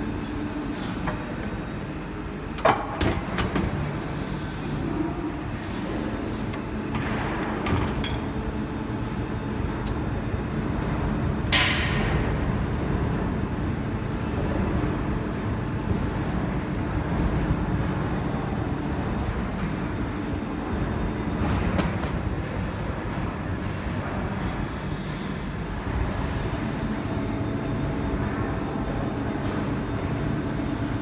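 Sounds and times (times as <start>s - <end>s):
injection moulding machine humming: 0.0s - 31.0s.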